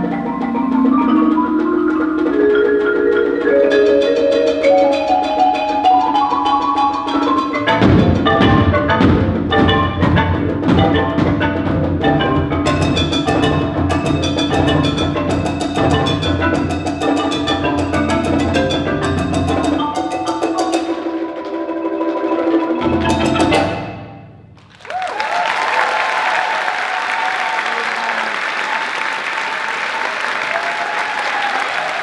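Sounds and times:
marimba playing: 0.0s - 24.6s
drum hits: 7.1s - 21.2s
audience applauding: 24.6s - 32.0s.

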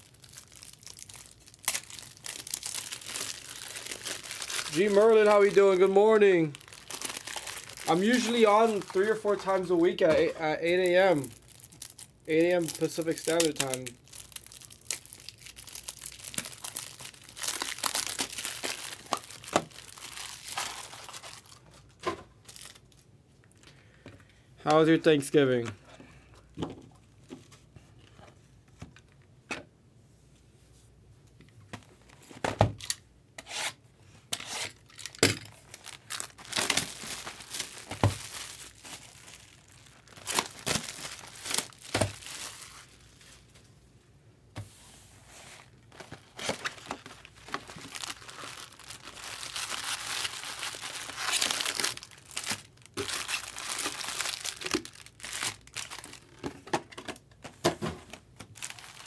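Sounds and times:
wrapping tearing and crinkling: 0.0s - 23.6s, 34.5s - 43.6s, 45.6s - 56.5s, 58.1s - 59.0s.

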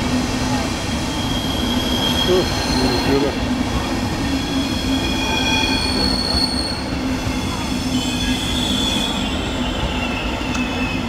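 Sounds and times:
high-pitched wheel squeals: 1.1s - 3.3s, 4.3s - 11.0s.

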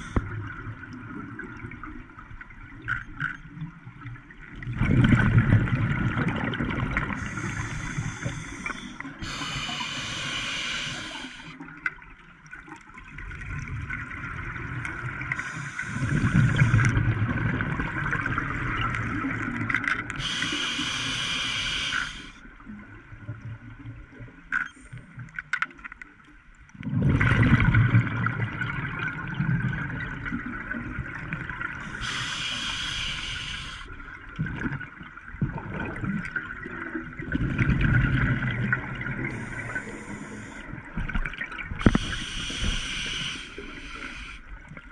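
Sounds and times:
exhaled bubbles underwater: 0.0s - 24.4s, 26.8s - 44.9s
regulator inhalation hiss: 7.2s - 11.6s, 15.4s - 16.9s, 20.2s - 22.4s, 31.8s - 34.0s, 39.3s - 40.7s, 41.8s - 44.4s.

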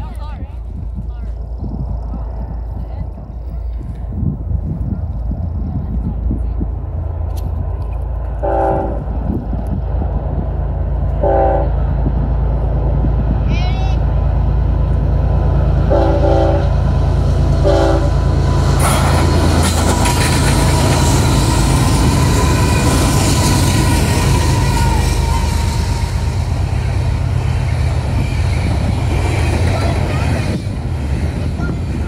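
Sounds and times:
locomotive low rumble: 0.0s - 32.0s
wheel-on-rail noise: 0.0s - 32.0s
train horn blasts: 8.4s - 9.1s, 11.2s - 11.8s, 15.9s - 16.8s, 17.6s - 18.2s.

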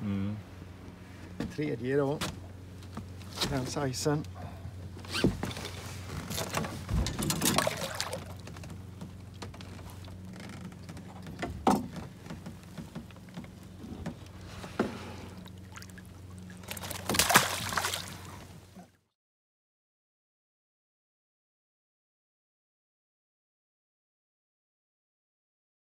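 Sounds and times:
steady low hum: 0.0s - 19.0s
fish thrashing and splashing: 5.3s - 8.7s, 15.4s - 18.5s.

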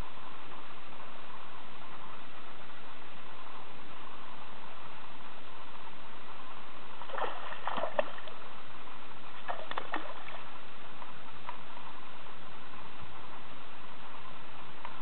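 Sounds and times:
steady background noise: 0.0s - 15.0s
fish splashing at water surface: 7.0s - 8.4s, 9.4s - 10.5s.

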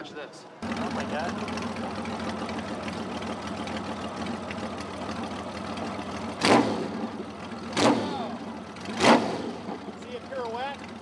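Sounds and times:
motorcycle engine idling: 0.6s - 11.0s
loud engine burst: 6.3s - 9.8s.

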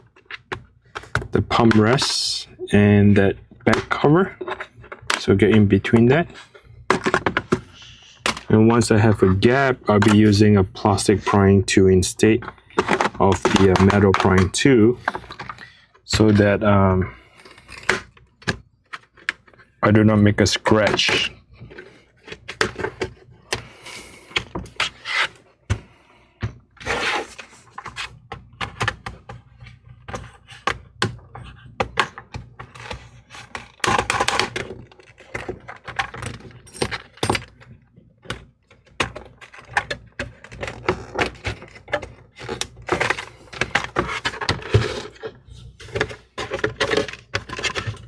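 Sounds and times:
plastic cover clicking and snapping: 12.4s - 16.2s, 30.0s - 48.0s.

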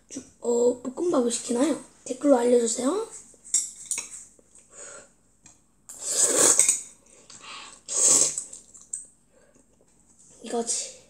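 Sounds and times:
child slurping noodles: 5.9s - 6.8s, 7.5s - 8.7s.

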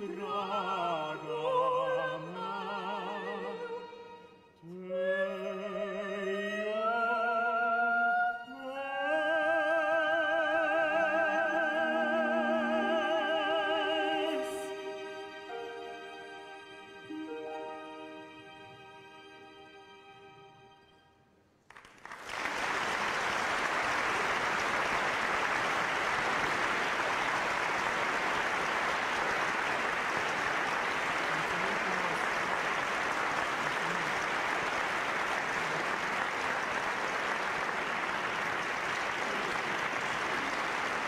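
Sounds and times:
audience applauding: 21.6s - 41.0s.

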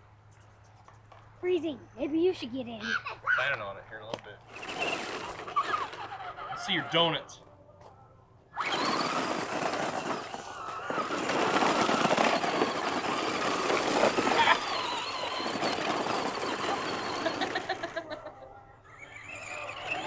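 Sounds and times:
tyres crunching on gravel: 4.0s - 7.5s, 8.6s - 18.0s
toy truck motor whining: 4.4s - 7.4s, 8.5s - 20.0s.

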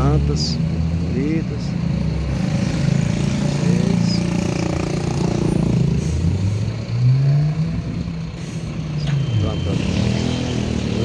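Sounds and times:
vehicle engines running: 0.0s - 11.0s
vehicle speeding up: 2.1s - 8.5s, 9.5s - 11.0s.

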